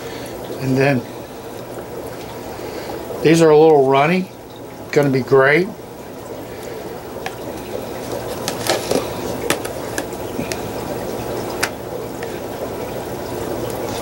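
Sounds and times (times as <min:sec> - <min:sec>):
aquarium water bubbling: 0:00.0 - 0:14.0.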